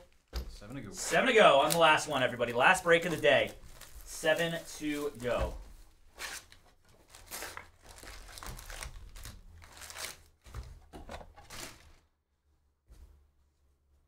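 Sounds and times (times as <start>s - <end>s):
card packs crinkling: 0.0s - 5.5s, 6.3s - 12.0s.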